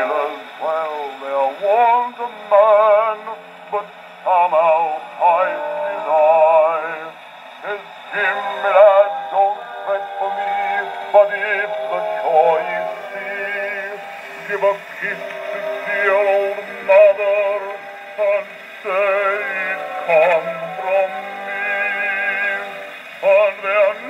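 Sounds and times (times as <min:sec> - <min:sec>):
man singing bass on gramophone: 0:00.0 - 0:24.0.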